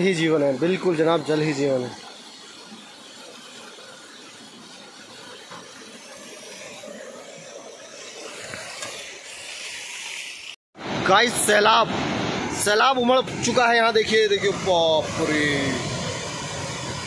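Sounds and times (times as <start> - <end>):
water gushing into a tiled basin: 0.0 - 10.6.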